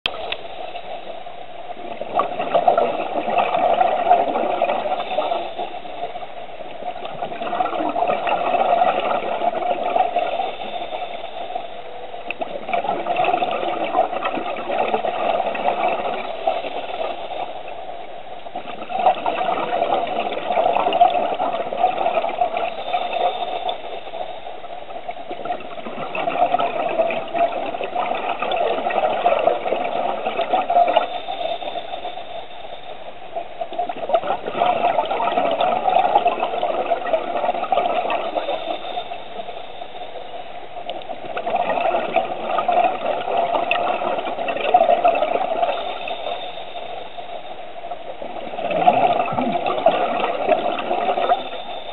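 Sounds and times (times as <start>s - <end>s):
bubbly exhalation underwater: 1.9s - 5.4s, 6.9s - 10.5s, 12.3s - 17.2s, 18.6s - 23.3s, 25.3s - 31.1s, 33.7s - 38.6s, 41.2s - 45.8s, 48.2s - 51.6s.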